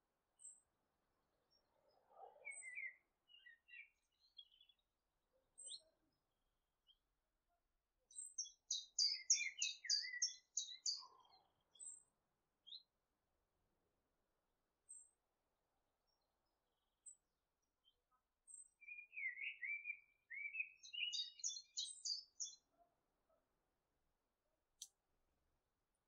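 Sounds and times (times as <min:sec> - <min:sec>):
small birds chirping: 0:01.5 - 0:04.9, 0:05.6 - 0:06.0, 0:08.1 - 0:12.9, 0:17.8 - 0:22.8.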